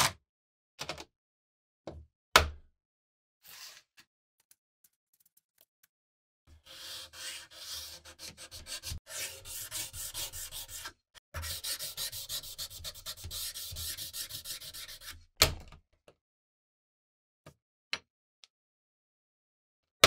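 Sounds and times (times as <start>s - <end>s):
sandpaper rubbing on steel blade: 6.6s - 15.2s.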